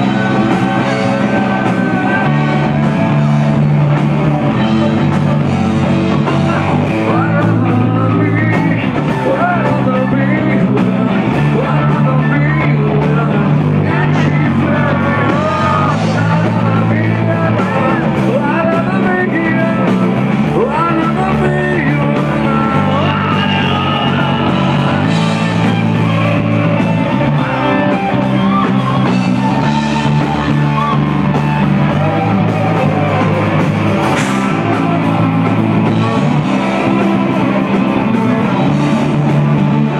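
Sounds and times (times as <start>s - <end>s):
electric guitar: 0.0s - 39.9s
person singing: 0.0s - 39.9s
rock band playing live: 0.0s - 39.9s.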